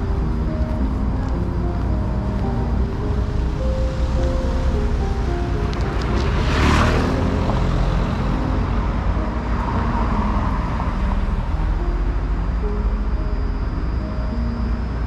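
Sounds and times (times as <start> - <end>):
faint background music: 0.0 - 15.0
road traffic rumble: 0.0 - 15.0
car passing by: 3.3 - 12.6.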